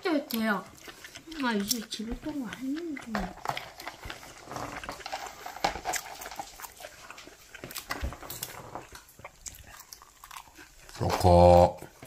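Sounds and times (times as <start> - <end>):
crunchy snacks being chewed: 0.0 - 12.0
snacks rustling in plastic tub: 1.0 - 11.4.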